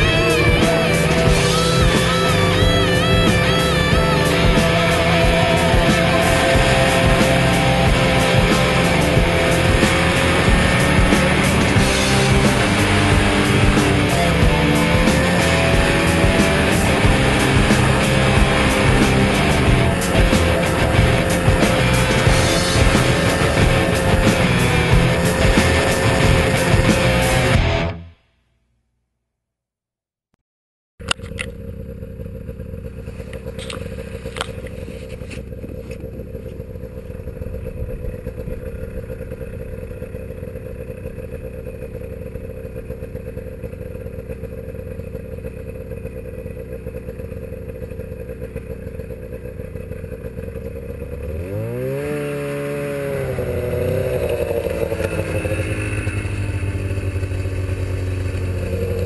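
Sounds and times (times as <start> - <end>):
snowmobile engine: 0.0 - 28.0, 31.0 - 59.0
sharp clicks: 31.0 - 31.6.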